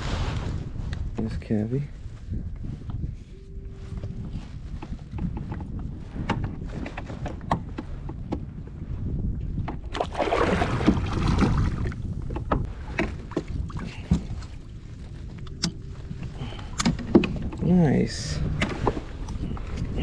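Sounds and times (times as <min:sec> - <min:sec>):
wind on microphone: 0:00.0 - 0:20.0
water splashing against kayak: 0:09.5 - 0:17.7.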